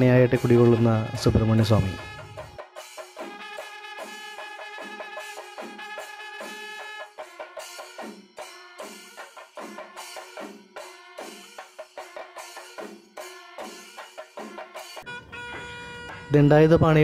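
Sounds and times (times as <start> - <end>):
held pitched notes: 0.0 - 2.6
drum rhythm: 0.0 - 17.0.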